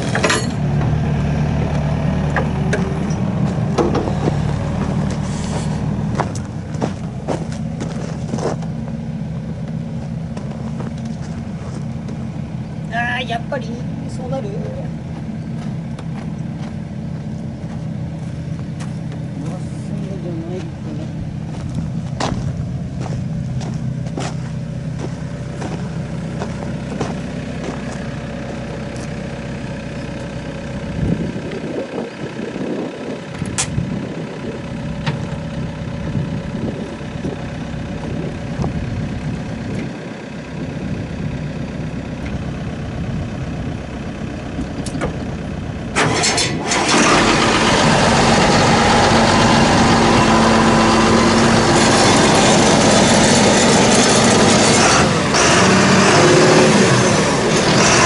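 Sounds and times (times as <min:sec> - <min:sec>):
sharp metallic clanks: 0:00.0 - 0:00.6
heavy machine engine running: 0:00.0 - 0:58.0.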